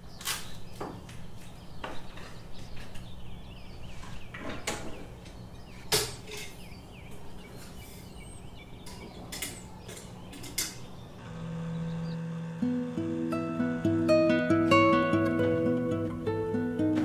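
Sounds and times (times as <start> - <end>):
small bird chirping: 0.0 - 12.4
low hum: 11.1 - 16.1.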